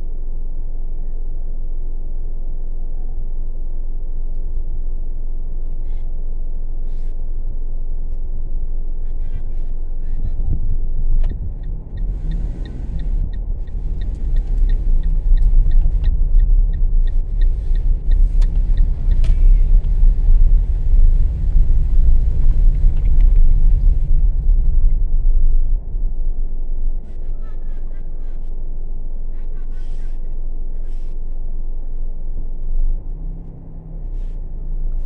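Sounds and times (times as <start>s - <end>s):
car engine and road rumble: 0.0s - 35.0s
even ticking: 11.2s - 24.0s.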